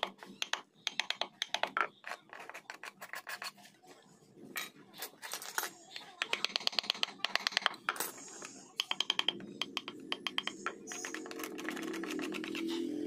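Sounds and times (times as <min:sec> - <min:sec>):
chisel scraping wood: 0:10.9 - 0:12.9.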